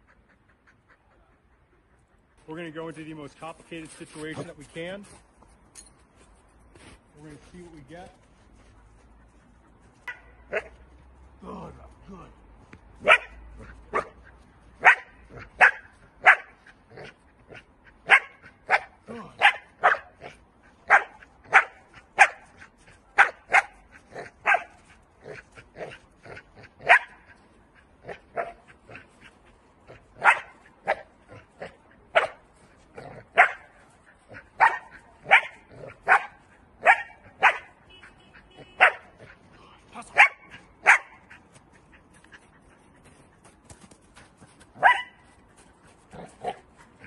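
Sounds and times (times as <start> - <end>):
dog barking sharply: 13.0 - 14.2, 14.8 - 16.6, 18.0 - 20.2, 23.2 - 23.8, 30.2 - 31.1, 34.6 - 39.1, 40.1 - 41.2, 44.8 - 45.2.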